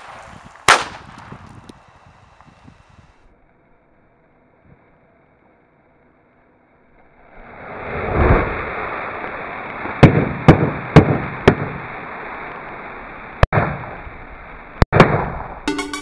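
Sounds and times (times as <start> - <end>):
sharp firecracker bangs: 0.0 - 2.6, 9.9 - 11.8, 14.9 - 15.6
firecrackers crackling and blasting: 0.0 - 3.3, 7.3 - 15.6.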